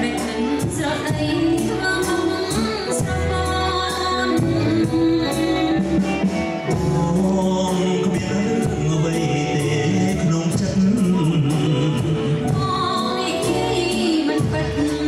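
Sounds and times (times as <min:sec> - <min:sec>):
woman singing: 0:00.0 - 0:10.0, 0:11.5 - 0:15.0
live pop band playing: 0:00.0 - 0:15.0
steady drum beat: 0:00.0 - 0:15.0
man singing: 0:06.4 - 0:12.6.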